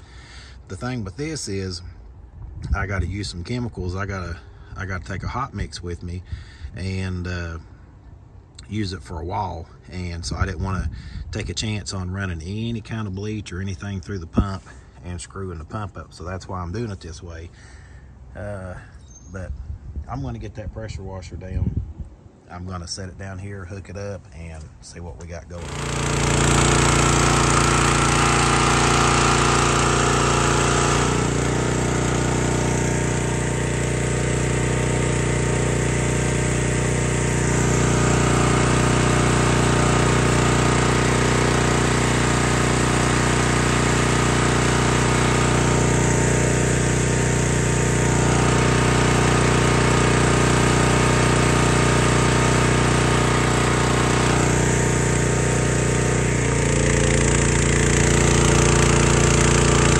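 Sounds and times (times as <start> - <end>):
pressure washer engine running: 0.0 - 0.7, 25.5 - 59.9.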